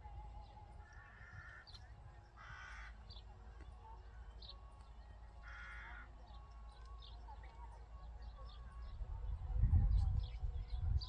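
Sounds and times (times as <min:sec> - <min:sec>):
small birds chirping: 0:00.0 - 0:11.0
crow cawing: 0:00.8 - 0:01.7, 0:02.4 - 0:03.0, 0:05.4 - 0:06.1
wind rumble on microphone: 0:07.2 - 0:11.0.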